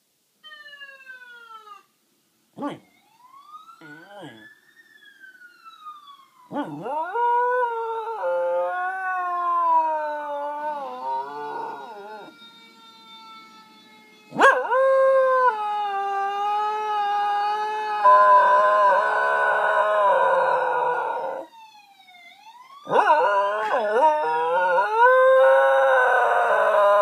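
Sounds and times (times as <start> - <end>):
distant siren wail: 0.4 - 2.0, 2.6 - 27.0
dog howling: 6.5 - 12.3, 14.4 - 21.5, 22.9 - 27.0.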